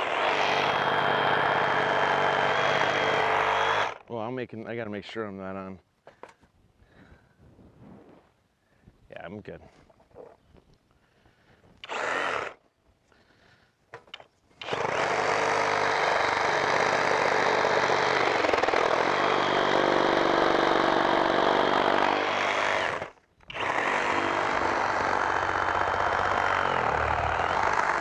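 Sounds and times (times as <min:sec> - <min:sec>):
reciprocating saw cutting wood: 0:00.0 - 0:04.0, 0:11.8 - 0:12.6, 0:14.6 - 0:28.0.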